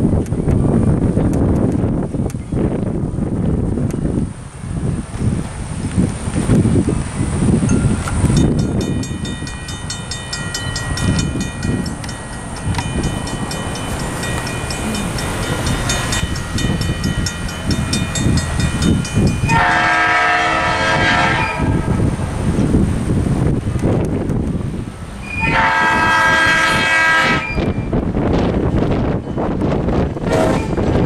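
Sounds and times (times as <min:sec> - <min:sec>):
wind gusting on microphone: 0:00.0 - 0:31.0
railroad crossing bell ringing: 0:07.6 - 0:21.8, 0:25.2 - 0:28.0, 0:29.0 - 0:30.9
train horn blast: 0:19.5 - 0:22.1, 0:25.2 - 0:27.8, 0:30.2 - 0:30.9.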